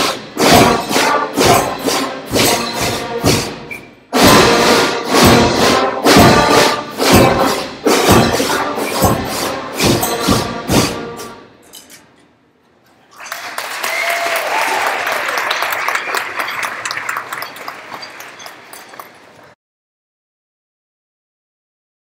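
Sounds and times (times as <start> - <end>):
concert band playing chords: 0.0 - 11.5
audience applauding: 13.1 - 19.6.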